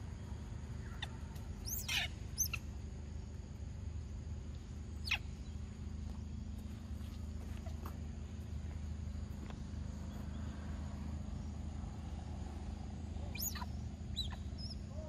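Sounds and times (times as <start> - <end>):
monkeys squeaking: 1.0 - 2.6, 5.0 - 5.2, 13.3 - 14.9.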